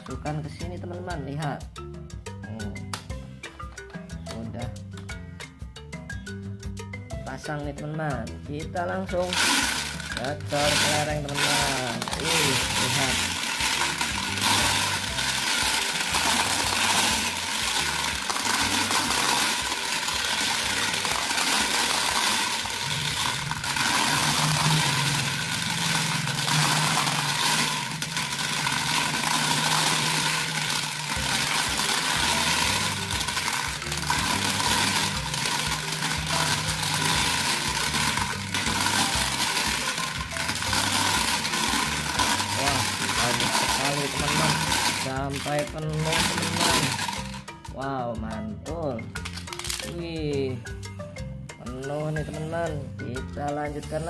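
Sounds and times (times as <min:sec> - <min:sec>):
glass marbles clattering on plastic: 0:08.8 - 0:47.6, 0:48.9 - 0:50.8.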